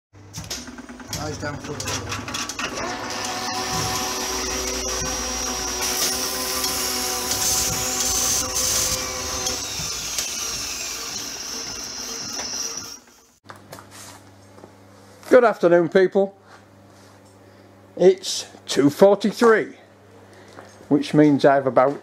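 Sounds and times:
motor whir with high whine: 1.1s - 13.4s.

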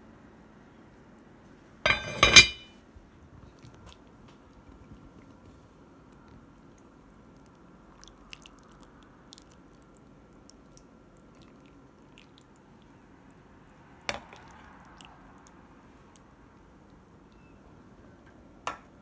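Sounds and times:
ladle knocking against pot: 1.9s - 2.7s
ladle squishing through broth: 6.4s - 13.4s, 14.2s - 17.1s.

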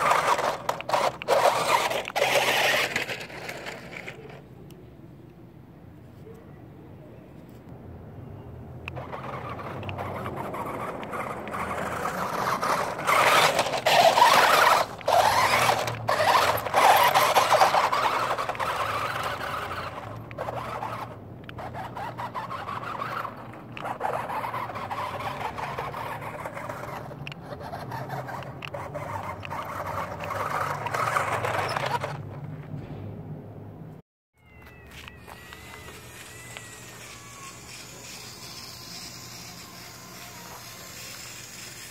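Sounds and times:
toy truck motor whining: 0.0s - 4.4s, 8.8s - 32.4s, 34.6s - 41.9s
tyres scrabbling over gravel: 0.0s - 4.4s, 9.0s - 32.7s.

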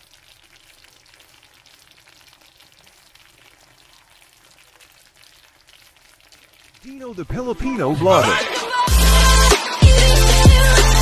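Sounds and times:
sauce sizzling in frying pan: 0.0s - 7.2s.

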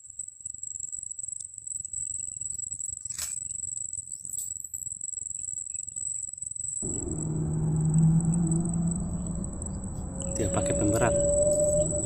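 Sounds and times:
handling noise rumble: 6.8s - 12.0s
insects calling high-pitched: 6.8s - 12.0s.

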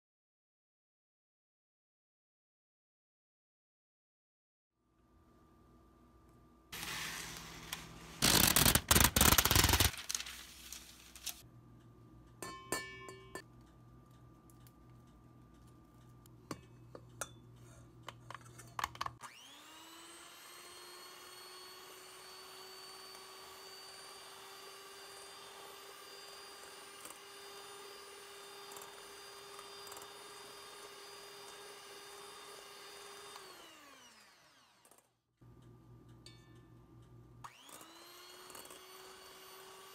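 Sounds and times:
electric mixer motor whirring: 19.2s - 35.0s, 37.4s - 39.9s.

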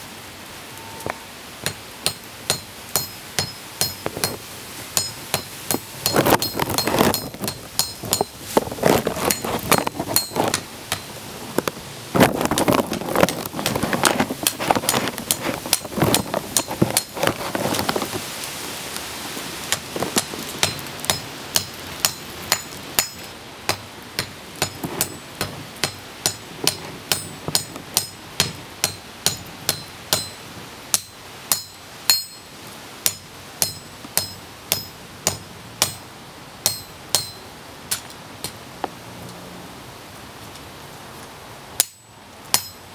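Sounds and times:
hammer striking metal on anvil: 1.6s - 4.4s, 5.0s - 8.3s, 10.2s - 11.1s, 20.2s - 32.5s, 33.1s - 36.0s, 36.6s - 38.6s, 41.8s - 42.8s.

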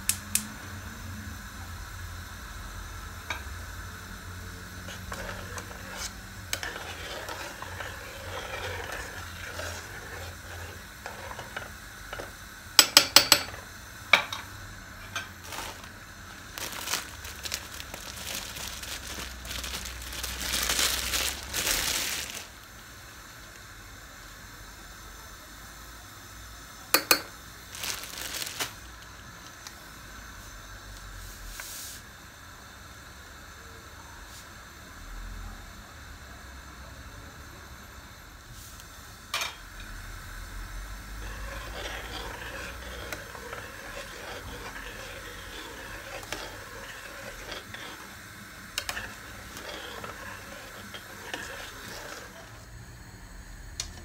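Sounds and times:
gas burner igniter clicking: 0.0s - 0.5s.

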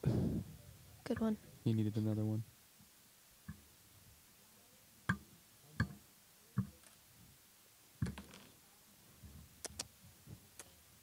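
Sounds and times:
sharp clicks: 9.6s - 9.9s.

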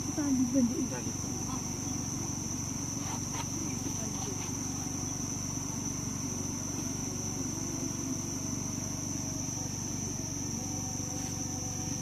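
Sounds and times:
high-pitched insect drone: 0.0s - 12.0s
low motor hum: 0.0s - 12.0s.

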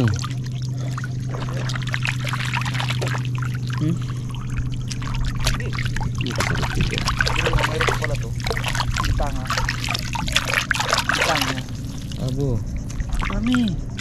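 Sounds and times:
water trickling off hands: 0.0s - 13.8s
low hum: 0.0s - 14.0s
small splashes and clicks: 0.0s - 14.0s.

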